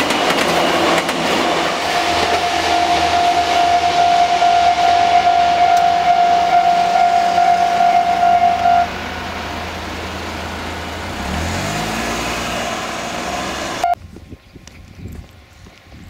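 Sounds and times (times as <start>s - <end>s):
level crossing alarm tone: 1.5s - 9.0s
car driving past: 7.3s - 13.9s.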